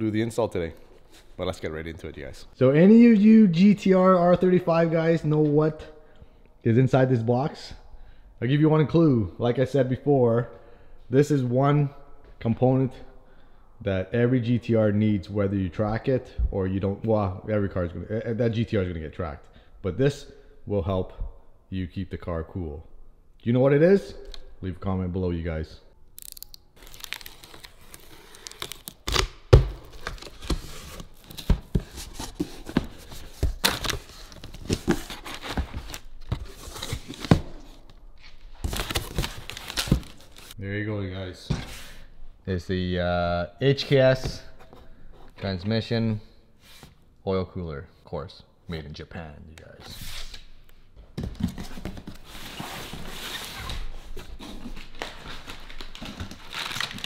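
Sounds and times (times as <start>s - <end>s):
packing paper and bubble wrap crinkling: 26.2s - 37.4s, 38.3s - 40.6s, 51.8s - 57.0s.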